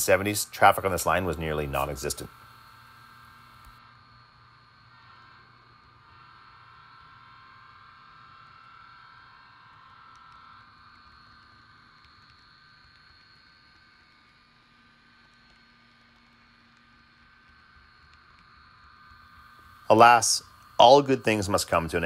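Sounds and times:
faint hum: 0.0 - 22.0
high whine: 0.0 - 22.0.

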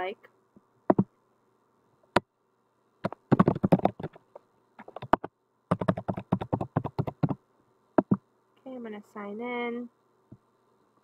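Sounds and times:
computer keyboard typing: 3.0 - 4.2, 4.8 - 7.4, 8.0 - 8.2.

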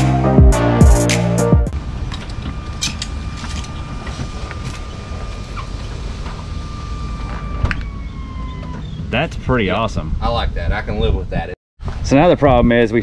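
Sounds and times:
hydraulic motor whine: 1.7 - 9.0.

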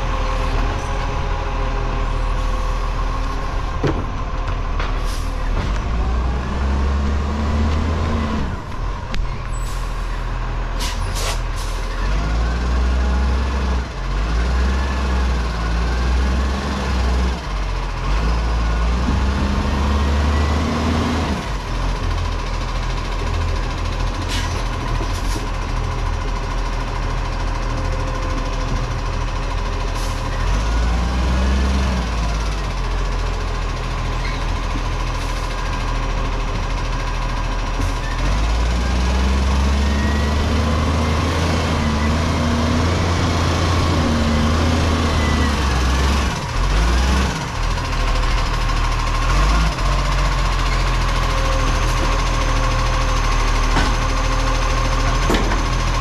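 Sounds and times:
truck diesel engine revving: 0.0 - 56.0
air brake hisses: 10.8 - 11.9.

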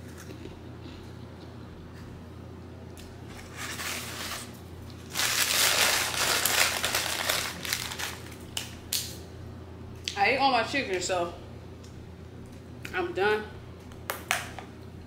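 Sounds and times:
paper bag crinkling: 3.4 - 8.5.

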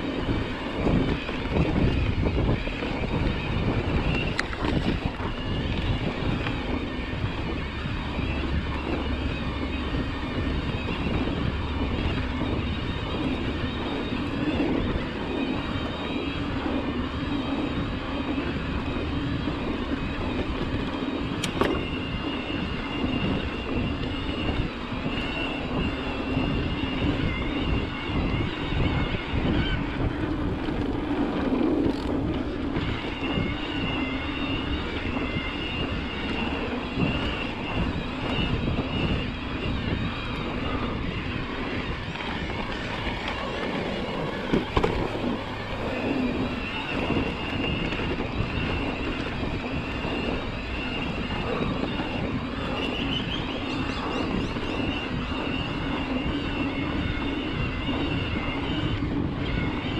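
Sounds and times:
bike tyres and frame rattling: 0.0 - 59.9
electric motor whine: 0.0 - 59.9
wind on microphone: 0.0 - 59.9
bike knocking on bumps: 42.0 - 45.4.

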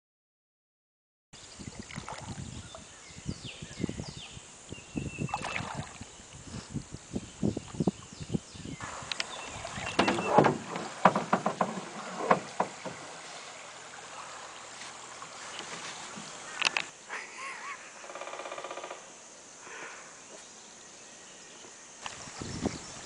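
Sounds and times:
paddle knocking canoe hull: 8.8 - 16.6.

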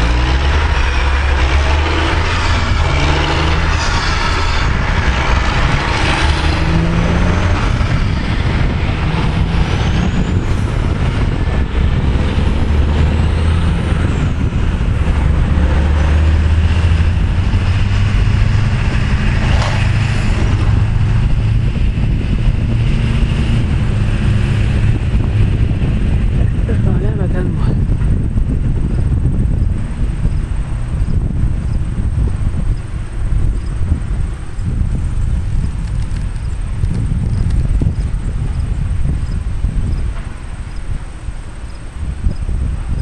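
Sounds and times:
train wheels rumbling on rails: 0.0 - 43.0.

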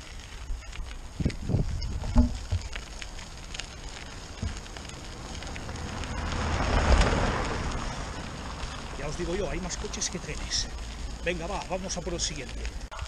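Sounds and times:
tyres crunching on gravel: 0.0 - 13.0
wind rumble on microphone: 0.4 - 2.8
car driving past: 5.2 - 9.0.

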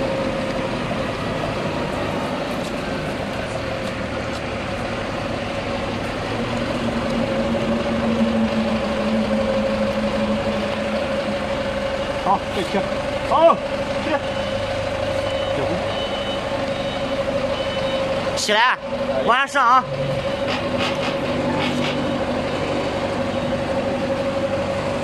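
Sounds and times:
engine idling with whine: 0.0 - 25.0
low hum: 4.7 - 13.8.

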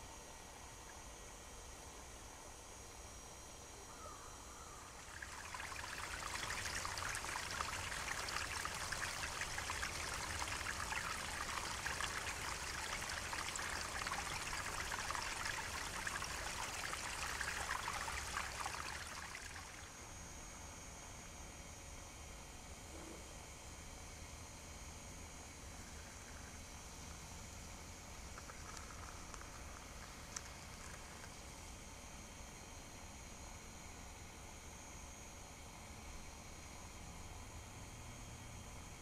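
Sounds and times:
stream splashing over rocks: 5.0 - 19.9.

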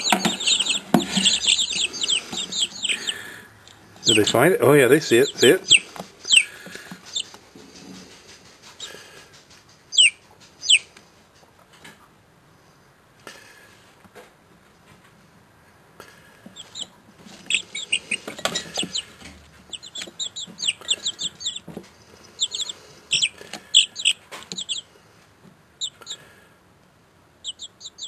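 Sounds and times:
chicks peeping: 0.0 - 12.0, 16.4 - 24.9, 25.8 - 26.4, 27.4 - 28.0.

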